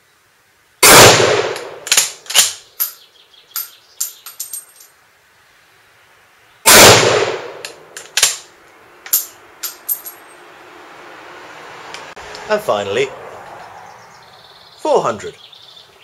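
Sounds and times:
rifle shot: 0.8 - 2.6, 6.7 - 8.4.

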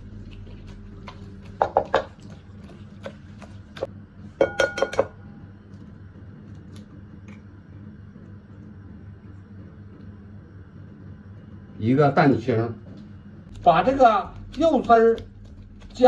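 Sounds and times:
egg tapping on glass bowl: 1.6 - 2.2, 3.8 - 5.2.

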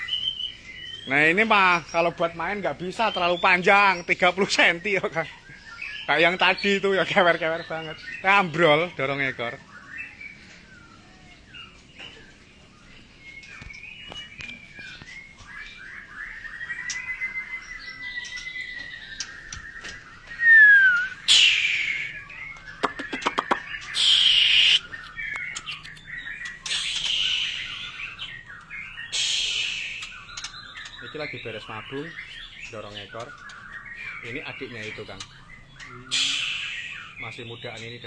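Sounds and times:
birds whistling song: 0.0 - 38.0
rasping bird calls: 17.9 - 37.4.

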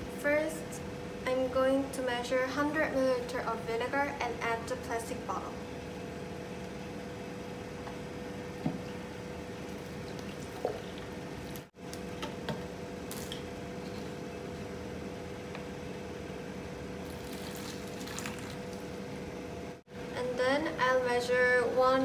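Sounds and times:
steady hum: 0.0 - 22.0
liquid trickling: 9.6 - 11.7, 17.0 - 19.1.

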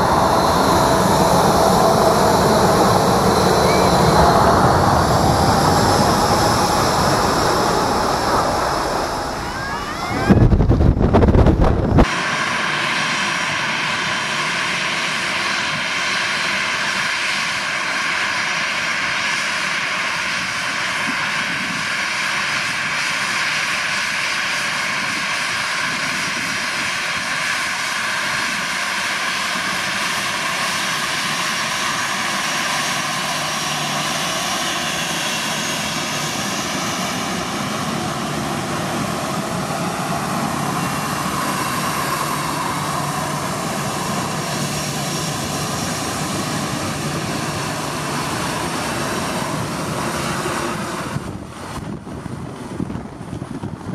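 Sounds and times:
deep engine rumble: 0.0 - 12.1
jet engines whining: 0.0 - 53.9.

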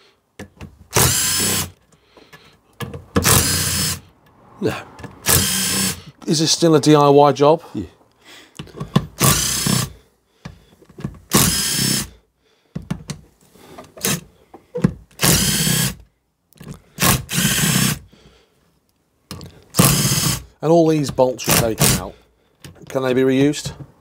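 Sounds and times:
cordless drill motor whine: 1.0 - 1.7, 3.2 - 4.0, 5.2 - 6.0, 11.3 - 12.1, 15.2 - 16.0, 17.3 - 18.0.

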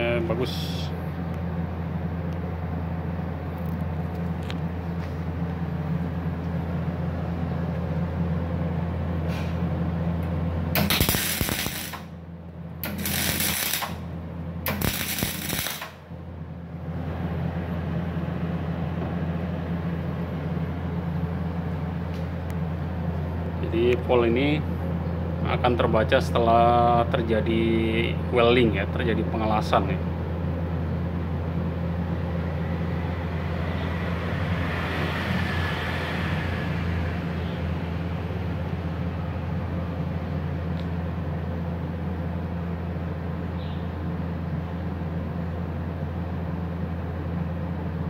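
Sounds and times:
welding machine humming: 9.8 - 17.6
welding crackle: 10.8 - 12.1, 12.8 - 14.1, 14.7 - 16.0.

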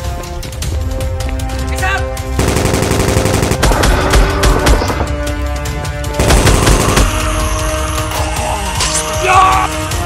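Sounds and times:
background music: 0.0 - 10.0
rapid gunfire bursts: 2.4 - 5.2, 6.2 - 7.2.

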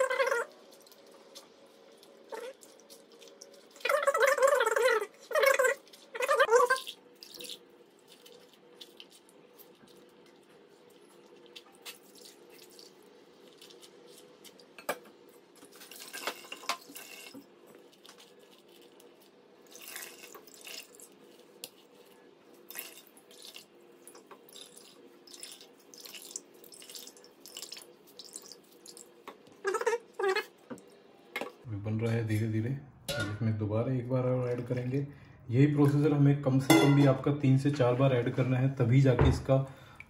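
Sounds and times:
liquid squelching and dripping: 0.0 - 14.8, 15.6 - 30.9
hands squeezing wet mash: 0.0 - 30.9.

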